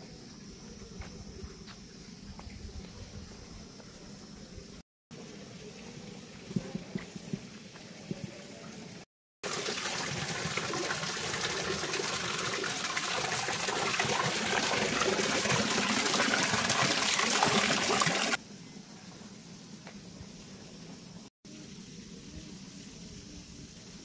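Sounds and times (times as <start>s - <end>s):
water pouring from spout: 9.4s - 18.4s.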